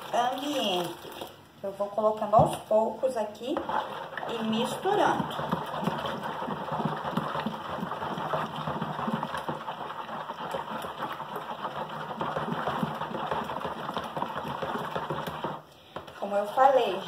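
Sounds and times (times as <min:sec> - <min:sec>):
spatula stirring liquid in bowl: 0:03.4 - 0:17.0.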